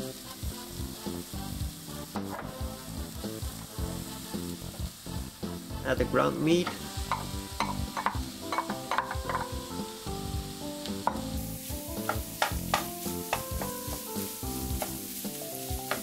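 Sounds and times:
background music with held notes: 0:00.0 - 0:16.0
meat sizzling in a frying pan: 0:00.0 - 0:16.0
wooden spatula scraping a pan: 0:06.6 - 0:10.0, 0:10.9 - 0:16.0.

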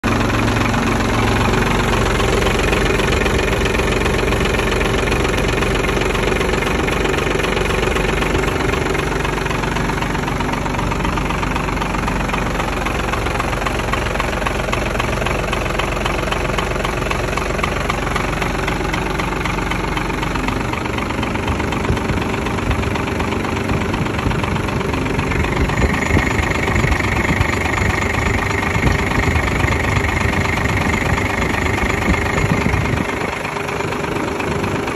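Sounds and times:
diesel engine idling: 0:00.0 - 0:34.9
high whine: 0:25.0 - 0:29.4.

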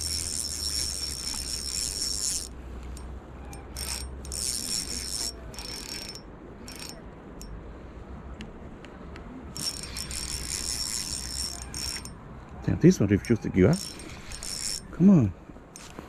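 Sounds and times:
fishing reel drag buzzing: 0:00.0 - 0:07.0, 0:09.6 - 0:12.2, 0:13.2 - 0:14.9, 0:15.8 - 0:16.0.

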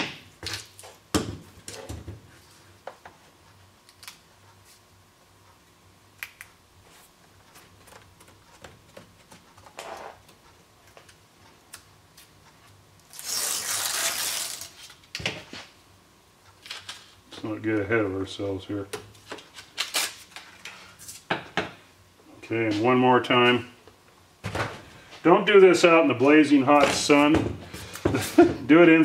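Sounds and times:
paper backing tearing rustle: 0:13.1 - 0:15.0.

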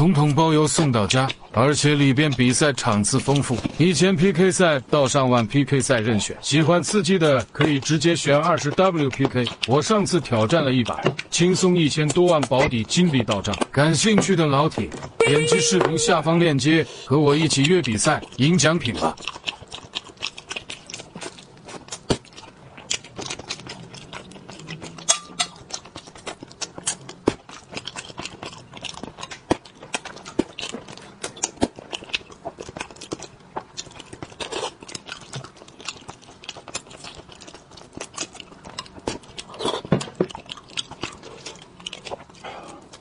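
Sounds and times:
person chewing and lip-smacking: 0:07.6 - 0:11.4, 0:15.0 - 0:43.0.

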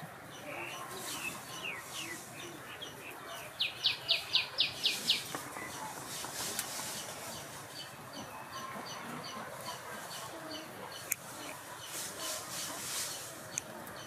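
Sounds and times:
songbird chirping: 0:00.0 - 0:14.0.

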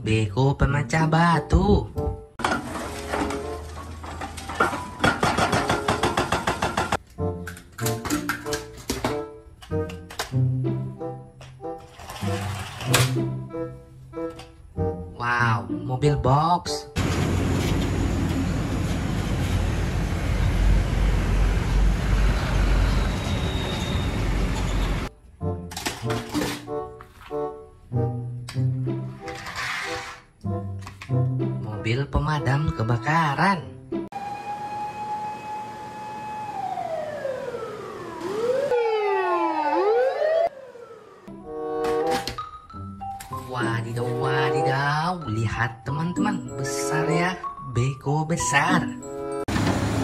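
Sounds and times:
trucks and motorbikes passing: 0:17.0 - 0:25.1, 0:49.5 - 0:50.0
fire engine sirens wailing: 0:34.2 - 0:41.3.

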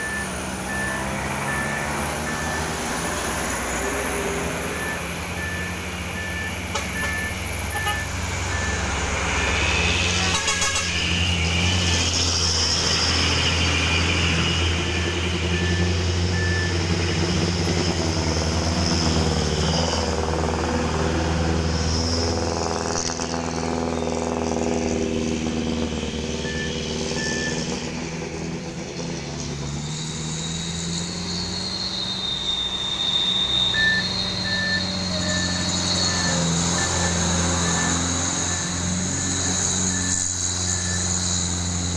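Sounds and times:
diesel trucks and buses passing: 0:00.0 - 0:41.9
short high beeps: 0:04.7 - 0:09.6, 0:26.4 - 0:27.7, 0:32.5 - 0:38.6, 0:39.8 - 0:41.2.

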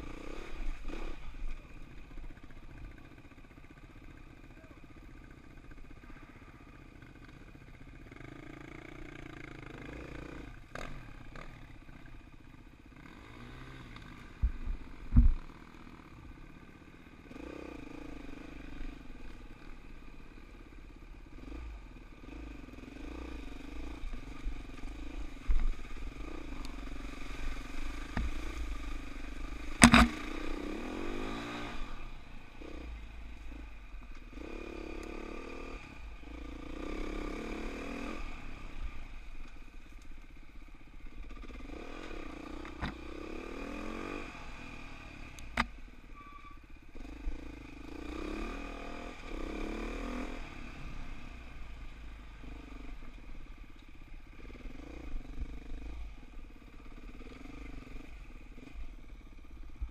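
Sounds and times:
sharp thumps and clatter: 0:14.4 - 0:15.4, 0:29.7 - 0:30.3
dirt bike engine revving: 0:21.3 - 0:33.7, 0:34.3 - 0:39.2, 0:41.2 - 0:45.7, 0:47.0 - 0:51.4.

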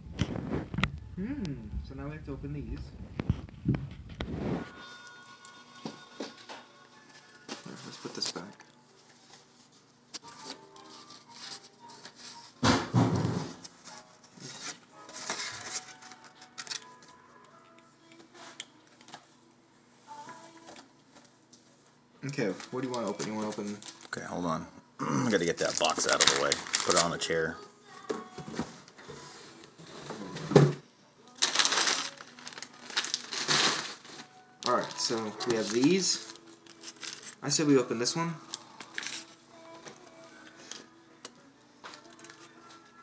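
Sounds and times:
short vocal sound: 0:01.1 - 0:01.8
paper rustling: 0:25.5 - 0:27.2, 0:31.4 - 0:37.4.

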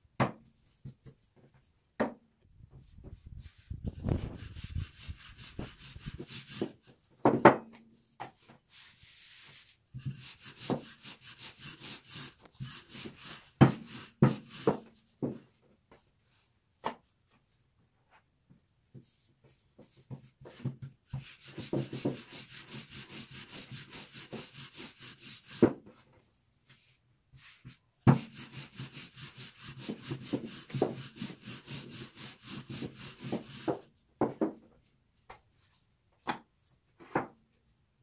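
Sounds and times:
rapid scraping strokes: 0:02.9 - 0:06.7.

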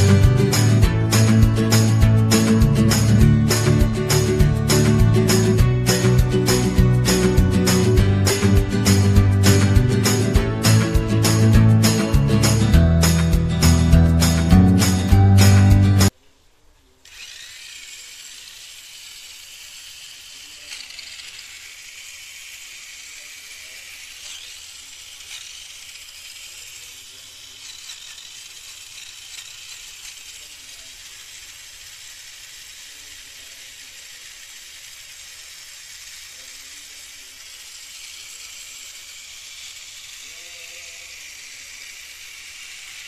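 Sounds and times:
small motor high whirr: 0:17.0 - 0:43.0.

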